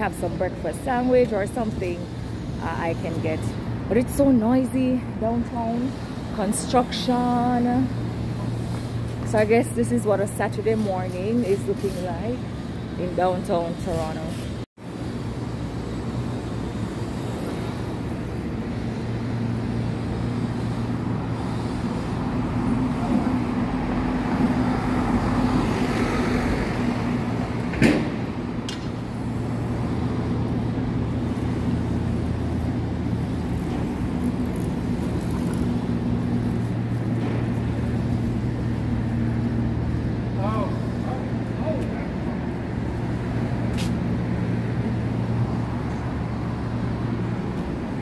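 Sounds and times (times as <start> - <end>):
traffic engine hum: 0.0 - 48.0
vehicles passing: 0.0 - 48.0
truck passing: 15.0 - 48.0.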